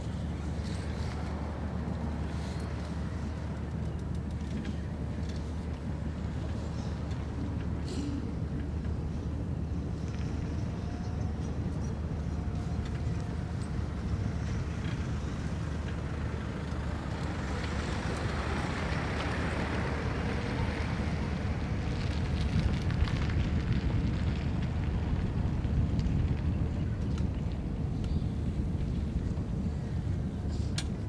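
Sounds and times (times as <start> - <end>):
wind on microphone: 0.0 - 31.0
low rumble: 20.0 - 31.0.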